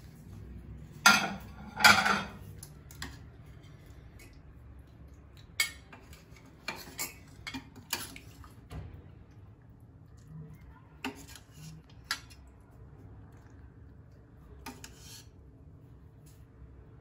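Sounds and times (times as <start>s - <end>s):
ceramic plates clattering: 1.0s - 2.4s.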